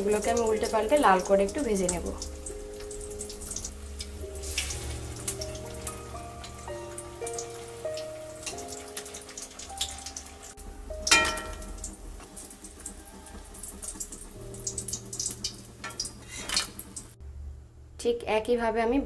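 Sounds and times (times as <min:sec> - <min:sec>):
oil sizzling and popping: 0:00.0 - 0:17.2
metal clank: 0:11.1 - 0:11.9.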